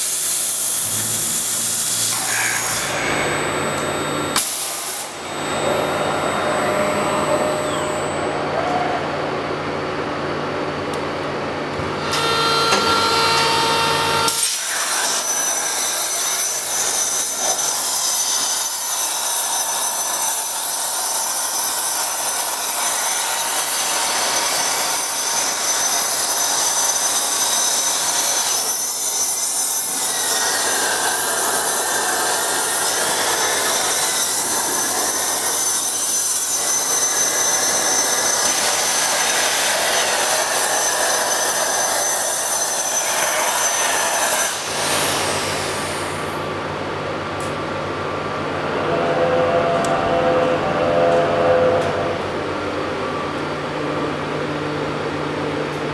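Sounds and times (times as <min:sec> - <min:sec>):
plasma torch hissing: 0:00.0 - 0:03.4, 0:04.4 - 0:05.2.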